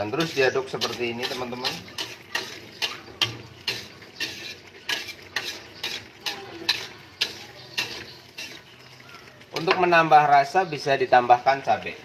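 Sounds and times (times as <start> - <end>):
metal spatula scraping a wok: 0.0 - 8.8.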